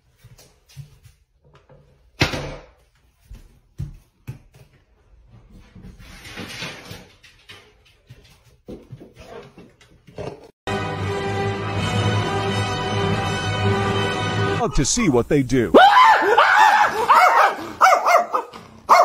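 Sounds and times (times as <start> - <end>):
low noise: 14.6 - 15.8.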